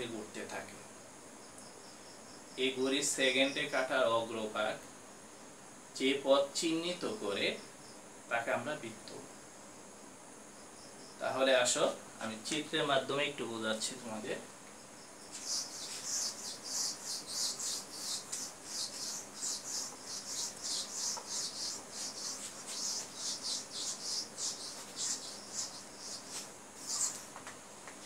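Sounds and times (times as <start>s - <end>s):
eraser rubbing on whiteboard: 15.3s - 27.3s.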